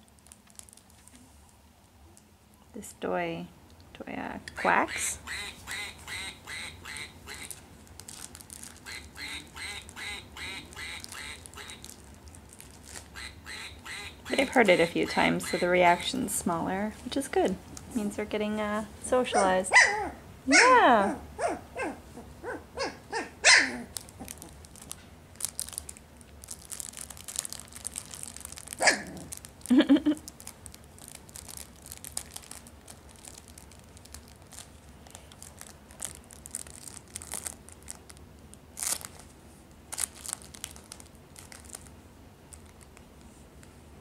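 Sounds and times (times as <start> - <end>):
puppies yipping and barking: 19.3 - 24.0, 28.8 - 29.2.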